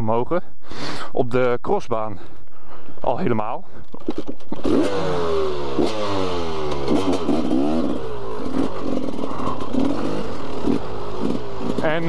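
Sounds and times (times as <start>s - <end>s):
motorcycle engine revving: 4.0s - 12.0s.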